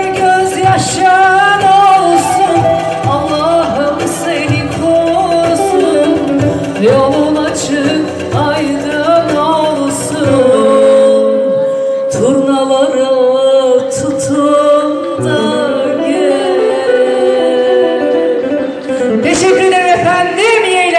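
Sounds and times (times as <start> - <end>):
woman singing ornamented notes: 0.0 - 20.8
electronic keyboard accompaniment: 0.2 - 11.3.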